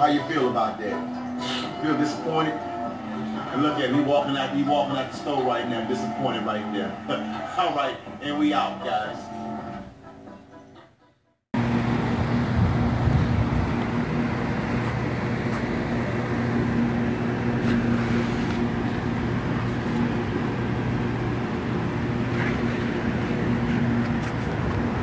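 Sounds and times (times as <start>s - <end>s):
low mechanical hum: 0.0s - 10.8s, 11.6s - 25.0s
traffic noise: 11.6s - 25.0s.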